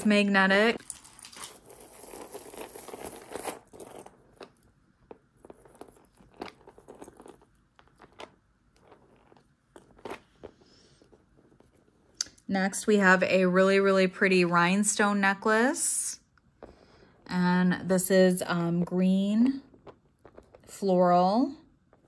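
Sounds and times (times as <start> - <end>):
crinkling handling noise: 0.8 - 12.2.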